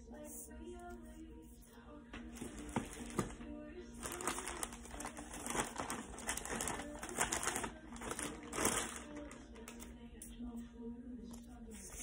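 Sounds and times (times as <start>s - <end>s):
plastic bag rustling and crinkling: 2.3s - 9.8s.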